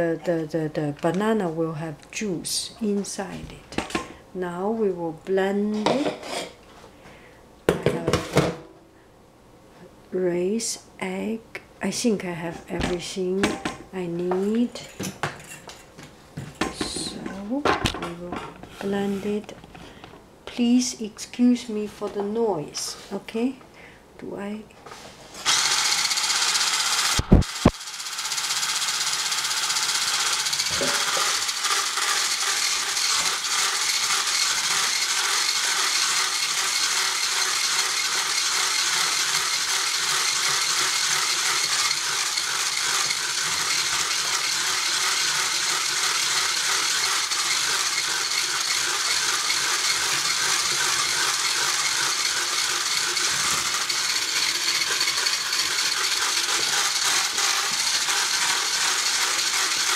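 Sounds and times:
electric whisk rattling in saucepan: 25.5s - 59.9s.

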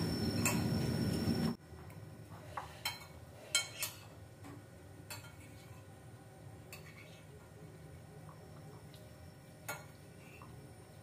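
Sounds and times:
high whine background noise: 0.0s - 2.5s
spoons clinking on plates: 2.6s - 4.2s, 5.1s - 5.8s.

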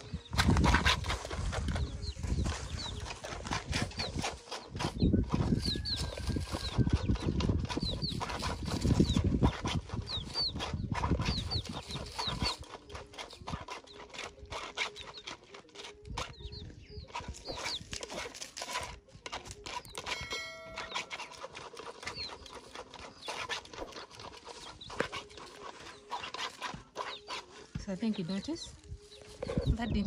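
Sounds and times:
knife scraping through sieve: 17.1s - 27.7s
bird chirps: 19.8s - 23.5s.

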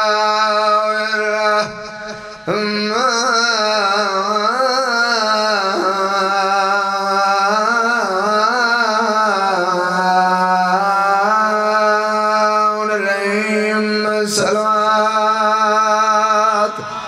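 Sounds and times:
man chanting into a microphone: 0.0s - 17.0s
short breath: 2.0s - 2.5s.

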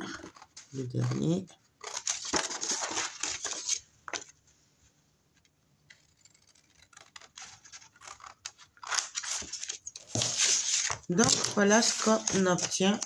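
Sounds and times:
paper rustling: 1.8s - 4.4s, 6.9s - 13.0s.

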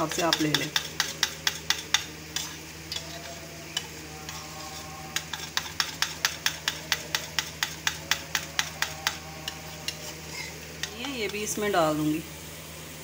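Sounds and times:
spoon clinking against bowl: 0.1s - 4.4s, 5.2s - 9.2s.

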